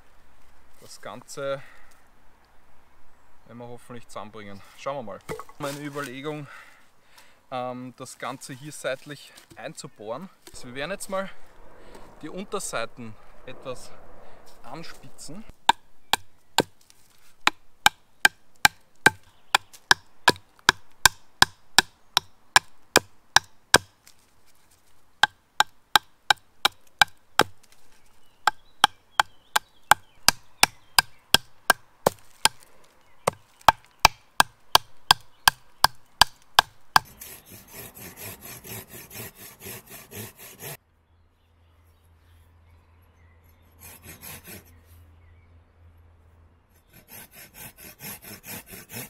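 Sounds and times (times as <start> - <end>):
knife chopping wood: 17.4 - 24.0, 25.2 - 27.8, 28.4 - 32.7, 33.3 - 40.8
hand saw cutting wood: 36.2 - 40.8, 43.8 - 44.8, 46.8 - 49.0.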